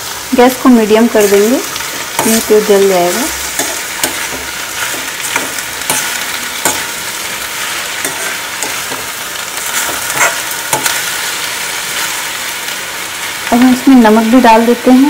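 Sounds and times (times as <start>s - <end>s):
vegetables sizzling in oil: 0.0s - 15.0s
metal spatula scraping a pan: 1.2s - 12.3s.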